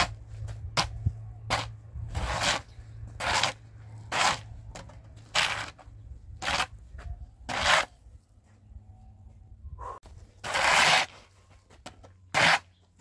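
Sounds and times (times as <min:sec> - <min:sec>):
hand shovel scraping earth: 0:00.0 - 0:06.8, 0:07.4 - 0:08.0, 0:10.3 - 0:13.0.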